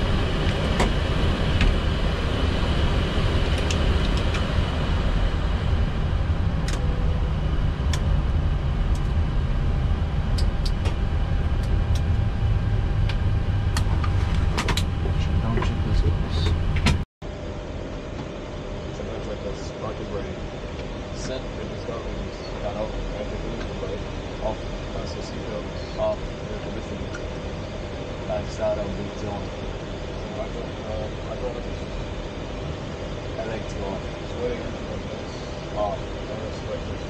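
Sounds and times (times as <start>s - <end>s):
airplane taxiing rumble: 0.0s - 37.0s
sharp clicks and ticks: 6.6s - 6.8s.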